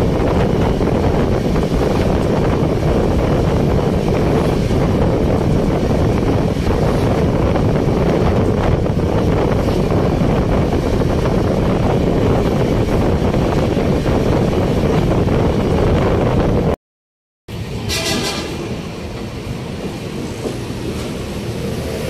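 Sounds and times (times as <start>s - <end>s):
train rumbling at speed: 0.0s - 16.8s, 17.5s - 22.0s
wind buffeting microphone: 0.0s - 16.8s.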